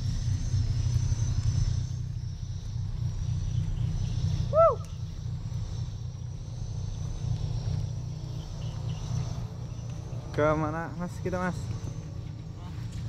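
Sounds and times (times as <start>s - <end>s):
rising and falling call: 4.0s - 5.4s.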